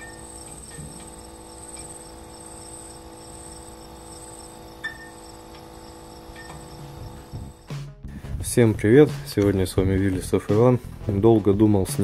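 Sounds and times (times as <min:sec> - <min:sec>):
crickets chirping: 0:00.0 - 0:07.7
low drone of held tones: 0:00.0 - 0:07.7.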